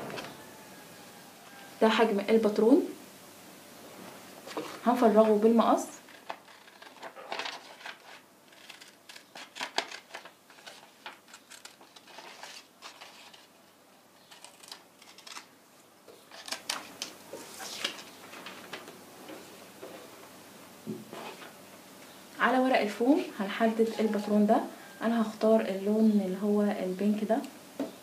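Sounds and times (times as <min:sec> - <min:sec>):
scissors cutting paper: 0:06.1 - 0:13.5, 0:14.3 - 0:15.5.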